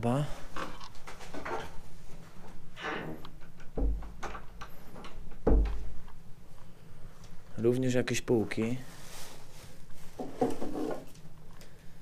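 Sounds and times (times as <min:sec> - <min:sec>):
dull heavy thumps: 0:05.4 - 0:06.0.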